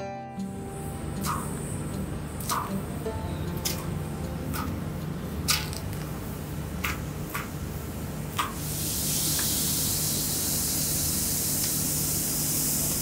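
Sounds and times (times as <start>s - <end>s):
vegetables sizzling on griddle: 8.5s - 13.0s.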